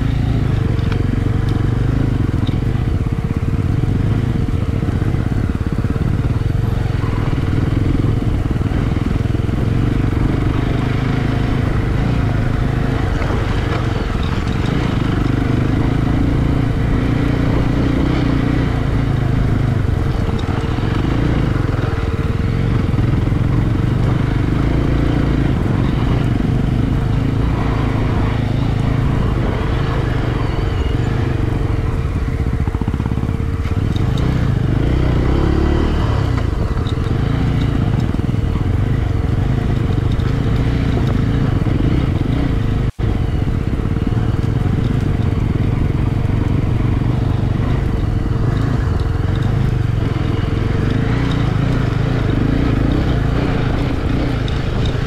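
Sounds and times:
motorcycle engine running: 0.0s - 55.0s.

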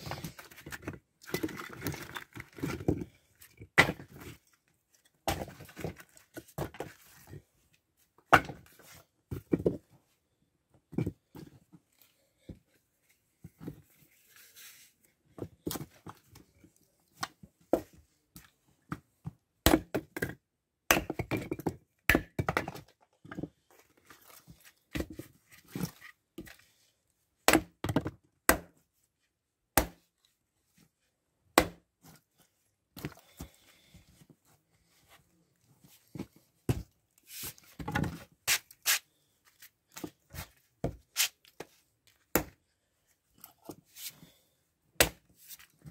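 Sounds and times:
axe splitting firewood: 0.1s - 4.3s, 19.6s - 20.2s, 20.9s - 22.8s, 27.5s - 28.7s, 29.8s - 30.0s, 31.6s - 31.8s, 45.0s - 45.3s.

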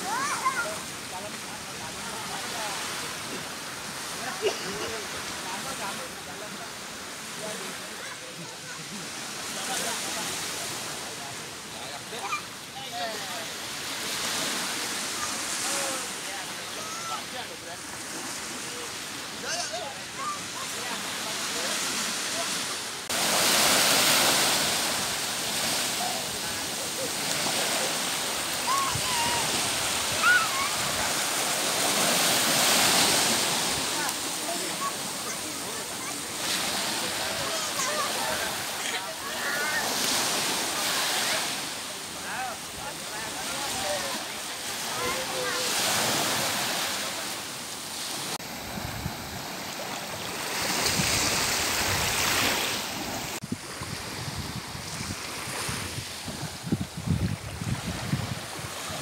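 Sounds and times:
child shouting: 0.0s - 0.7s, 28.6s - 29.5s, 30.2s - 30.7s
waves washing on beach: 0.0s - 59.0s
wind on microphone: 48.4s - 49.6s, 50.6s - 59.0s.

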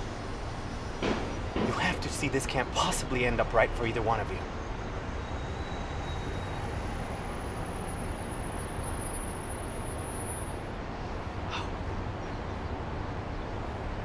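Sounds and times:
distant traffic rumble: 0.0s - 14.0s.

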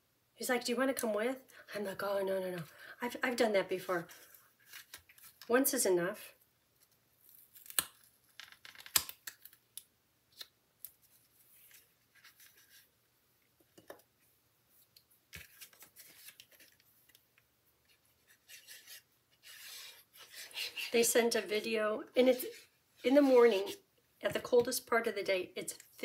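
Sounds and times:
paper rustling and sliding: 18.2s - 20.9s.

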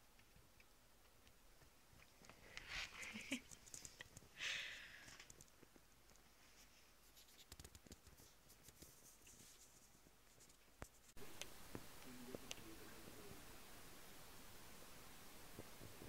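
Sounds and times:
soft rustles: 1.6s - 11.2s.

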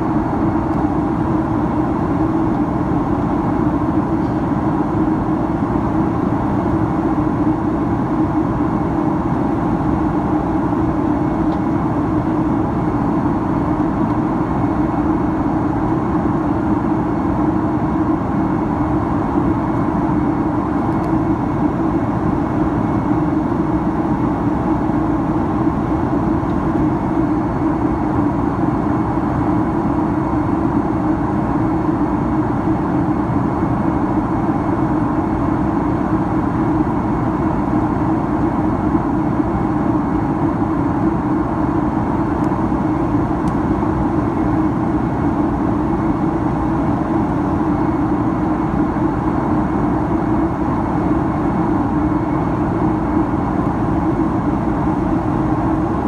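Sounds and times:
airplane cabin engine drone: 0.0s - 56.0s.

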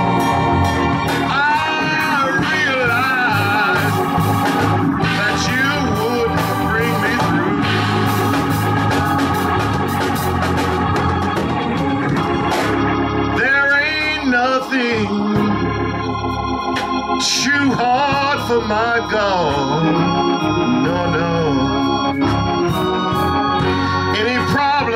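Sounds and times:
organ playing chords: 0.0s - 24.9s
man singing into a microphone: 1.3s - 4.2s, 5.0s - 7.7s, 13.3s - 15.6s, 17.2s - 22.2s, 24.1s - 24.9s.

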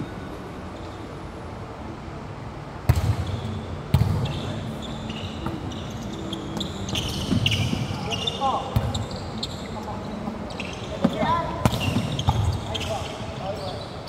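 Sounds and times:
volleyball hit hard echoing: 2.9s - 4.2s
sneakers squeaking on court: 2.9s - 14.0s.

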